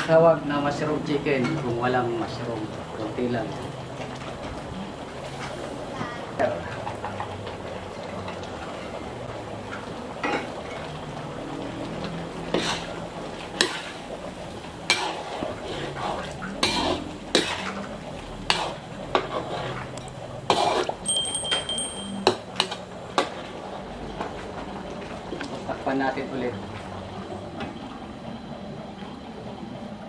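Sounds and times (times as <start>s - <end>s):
metal ladle scraping a wok: 12.4s - 13.0s, 14.8s - 21.2s.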